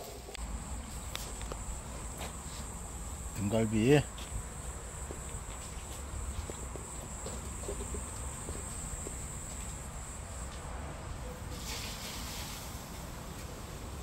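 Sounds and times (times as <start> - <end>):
short rush of noise: 11.5 - 13.7.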